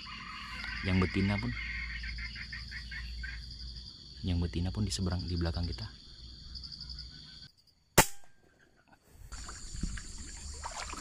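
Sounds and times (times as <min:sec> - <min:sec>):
insects chirring: 0:00.0 - 0:11.0
air rifle shot: 0:08.0 - 0:08.4.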